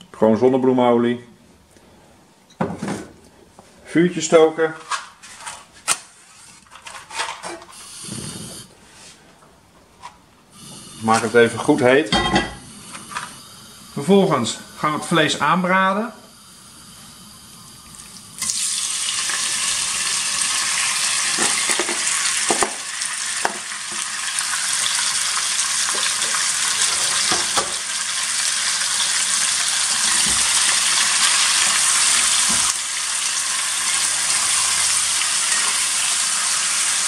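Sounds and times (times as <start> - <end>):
meat sizzling in oil: 16.4 - 37.0.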